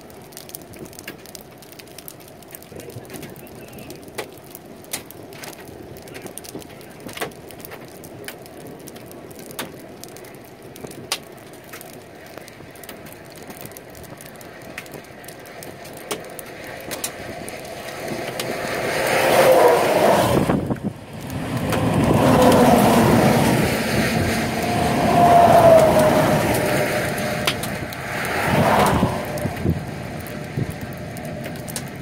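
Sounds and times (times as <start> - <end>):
trucks passing on highway: 16.4 - 32.0.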